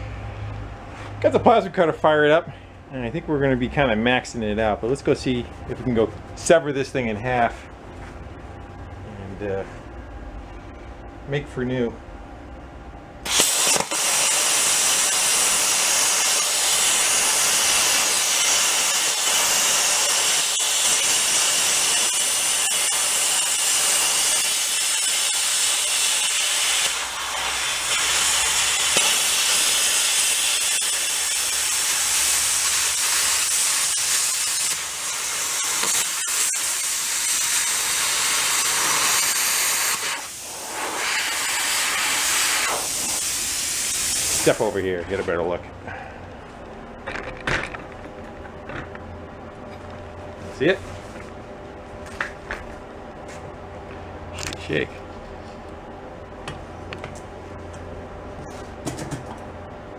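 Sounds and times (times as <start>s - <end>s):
plasma cutter hissing: 13.2s - 44.9s.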